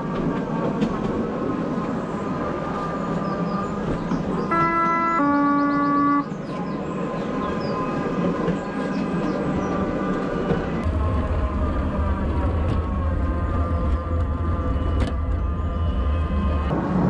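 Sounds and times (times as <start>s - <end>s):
train horn two notes: 4.5s - 6.3s.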